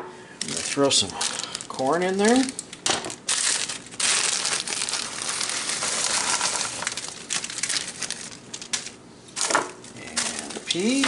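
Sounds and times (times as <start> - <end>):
plastic bag crinkling: 0.4 - 11.0
corn kernels falling into bowl: 5.5 - 7.0.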